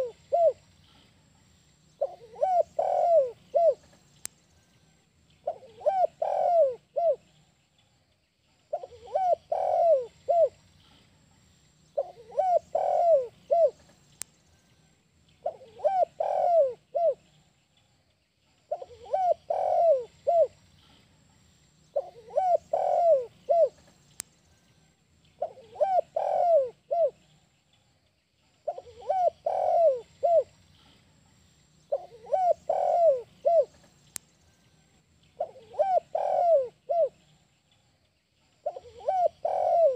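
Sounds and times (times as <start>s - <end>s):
dove cooing: 0.0s - 0.7s, 2.0s - 4.0s, 5.4s - 7.2s, 8.7s - 10.6s, 12.0s - 13.9s, 15.4s - 17.2s, 18.7s - 20.6s, 21.9s - 23.9s, 25.4s - 27.2s, 28.6s - 30.6s, 31.9s - 33.9s, 35.4s - 37.3s, 38.6s - 39.9s.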